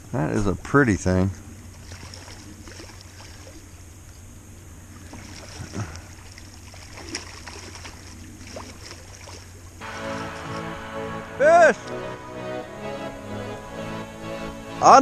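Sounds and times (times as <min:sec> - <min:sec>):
low steady hum: 0:00.0 - 0:15.0
flowing water rushing: 0:01.6 - 0:03.9, 0:04.9 - 0:12.0.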